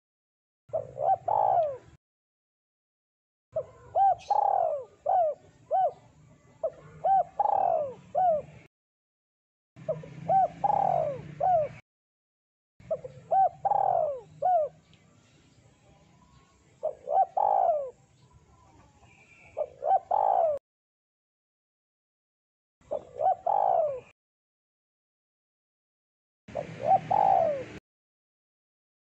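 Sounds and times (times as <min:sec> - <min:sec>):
dove cooing: 0:00.7 - 0:02.0, 0:03.6 - 0:08.7, 0:09.8 - 0:11.8, 0:12.8 - 0:14.8, 0:16.8 - 0:18.0, 0:18.6 - 0:20.6, 0:22.8 - 0:24.1, 0:26.5 - 0:27.8.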